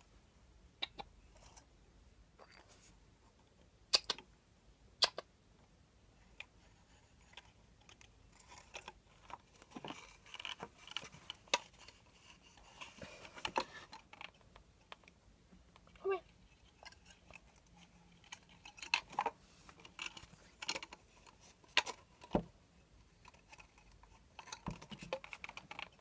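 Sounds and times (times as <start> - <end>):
hamster clicking and scrabbling: 23.1 - 26.0.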